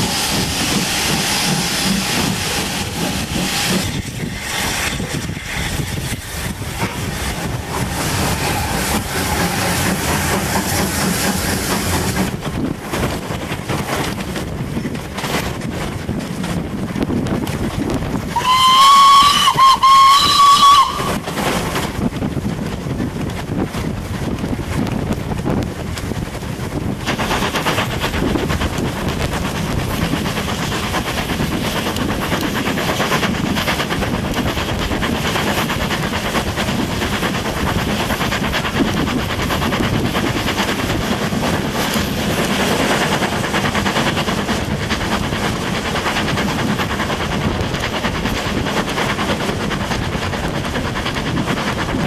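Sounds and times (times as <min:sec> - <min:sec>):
train running noise: 0:00.0 - 0:52.0
steam locomotive whistle: 0:18.4 - 0:21.3.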